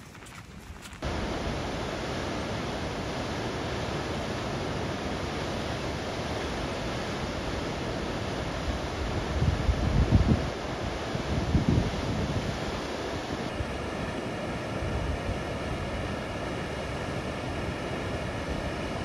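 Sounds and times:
footsteps on stony trail: 0.0 - 1.0.

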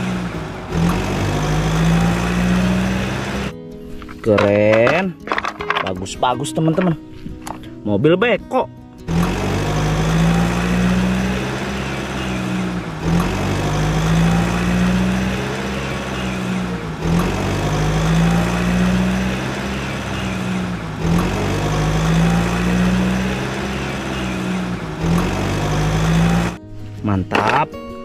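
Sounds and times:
heavy vehicle engine idling: 0.0 - 3.5, 9.1 - 26.6.

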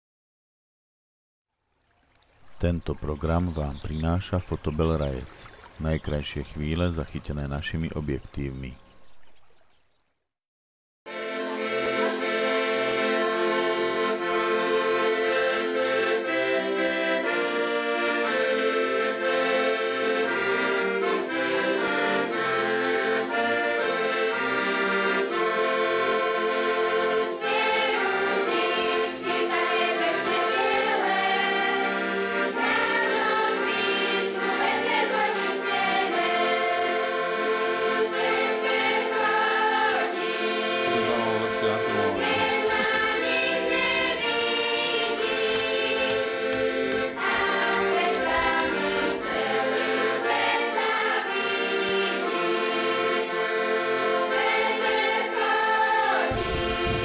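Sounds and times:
accordion playing folk tune: 11.1 - 57.0.

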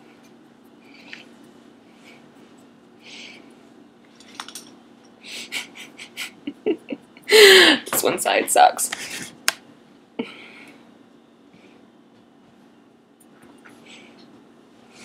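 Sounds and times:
low electrical hum: 0.0 - 15.0
woman laughing: 5.3 - 7.9
soft breaths: 13.7 - 15.0.

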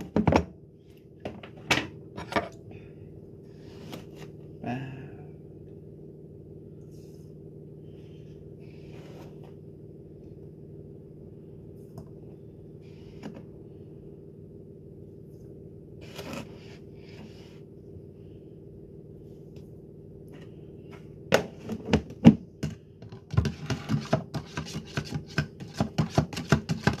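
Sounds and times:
steady low hum: 0.0 - 27.0
spoon scraping in plastic pitcher: 16.0 - 16.8, 23.0 - 27.0.

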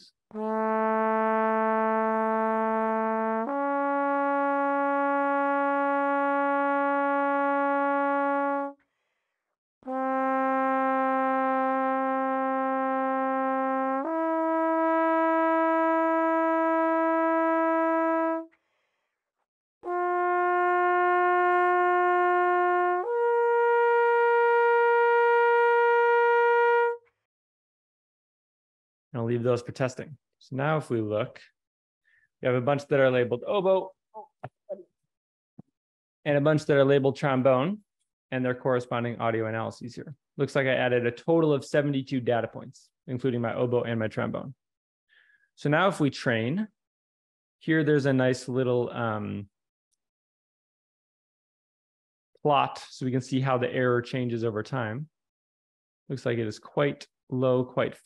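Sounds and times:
trombone long tones: 0.3 - 8.8, 9.8 - 18.5, 19.8 - 27.0.

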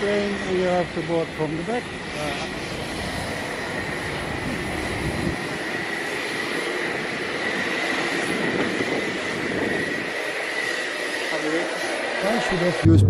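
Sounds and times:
aircraft turbine whine: 0.0 - 13.0.

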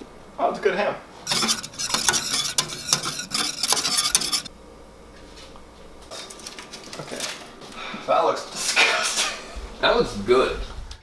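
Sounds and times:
whisk clinking and scraping pan: 1.2 - 4.5.

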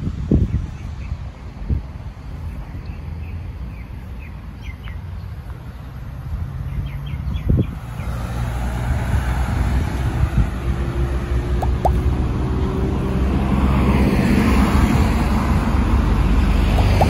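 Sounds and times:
road traffic noise: 0.0 - 17.0
vehicle engine: 1.3 - 17.0
bird chirps: 2.5 - 5.3.

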